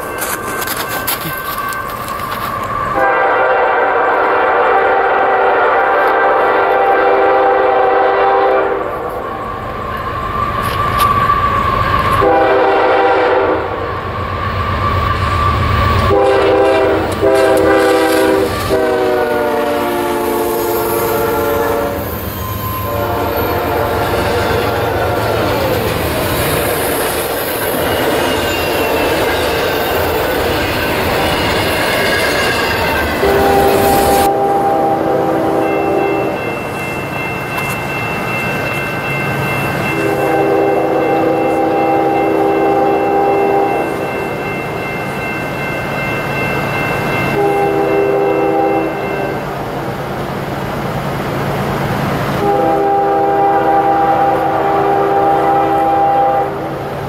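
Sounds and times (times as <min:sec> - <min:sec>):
train wheels rumbling on rail: 0:00.0 - 0:57.0
locomotive air horn blasts: 0:02.9 - 0:09.2, 0:12.2 - 0:13.8, 0:16.0 - 0:25.5, 0:33.2 - 0:36.4, 0:39.9 - 0:44.0, 0:47.4 - 0:49.4, 0:52.4 - 0:56.9.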